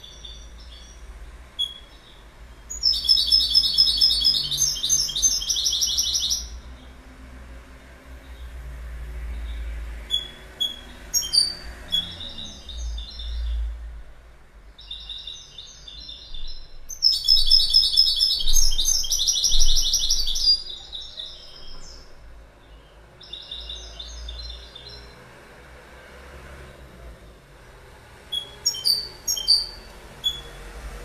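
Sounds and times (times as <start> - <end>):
goldfinch twittering song: 0.0 - 7.0, 9.3 - 13.7, 14.8 - 25.2, 28.3 - 30.7.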